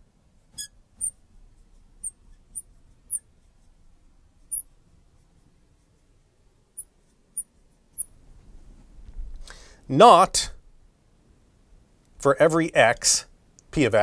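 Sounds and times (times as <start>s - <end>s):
marker squeaking on board: 0.5s - 3.8s, 4.4s - 6.1s, 6.8s - 8.1s
faint marker scratching: 0.5s - 8.2s.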